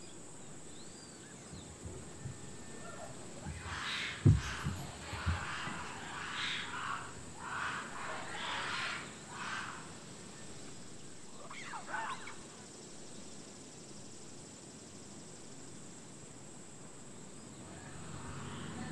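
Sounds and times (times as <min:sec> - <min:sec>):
rasping animal calls: 0:02.0 - 0:10.6, 0:11.4 - 0:12.5.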